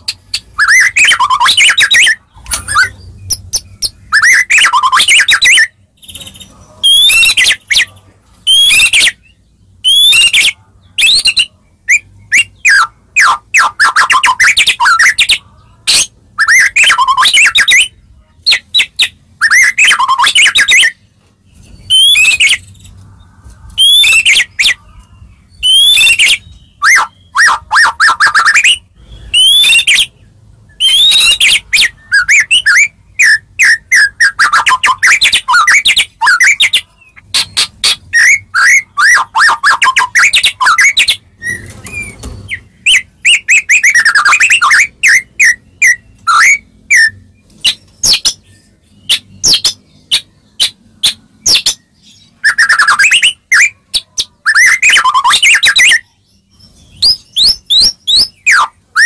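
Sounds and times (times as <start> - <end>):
bird singing whistles and chatter: 0.0 - 21.0, 21.6 - 23.0, 23.6 - 59.0.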